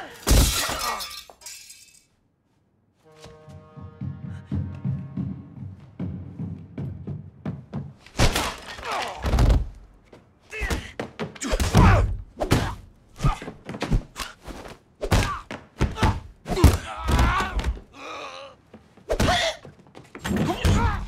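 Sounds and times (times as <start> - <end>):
men grunting and groaning: 15.2 - 18.6.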